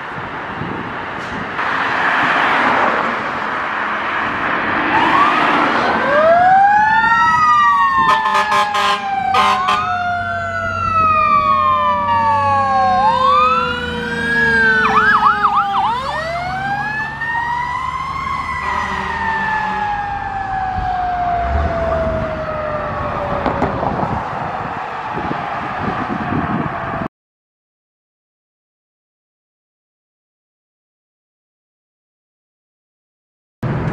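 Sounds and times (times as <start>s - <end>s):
truck engine rumbling: 3.0s - 27.0s, 33.6s - 33.9s
fire truck siren wailing: 4.2s - 27.1s
truck horn blasts: 8.1s - 9.9s, 18.6s - 19.8s.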